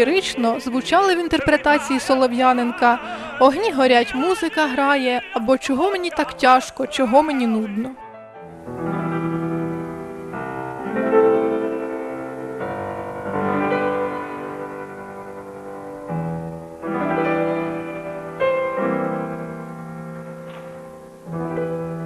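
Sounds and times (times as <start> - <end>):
slow grand piano chords: 5.2 - 22.0.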